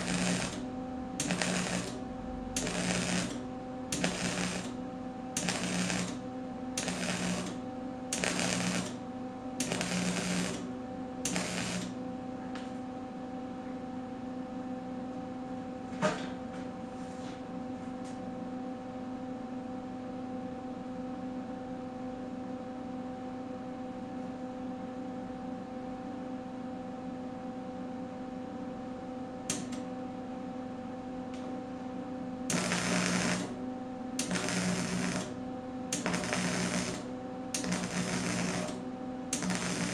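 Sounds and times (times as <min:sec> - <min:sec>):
welder arc crackling: 0:00.0 - 0:04.8, 0:05.4 - 0:06.2, 0:06.8 - 0:09.0, 0:09.6 - 0:12.0, 0:32.5 - 0:33.6, 0:34.2 - 0:39.9
electrical hum: 0:00.0 - 0:39.9.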